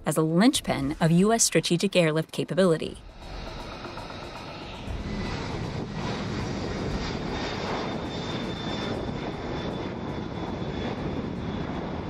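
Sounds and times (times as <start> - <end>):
jet engines rushing: 0.0 - 12.0
high jet whine: 3.0 - 12.0.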